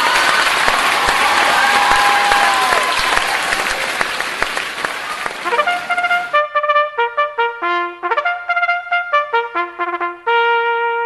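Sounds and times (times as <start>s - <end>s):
applause and crowd noise: 0.0s - 6.4s
trumpet tune: 5.2s - 11.0s.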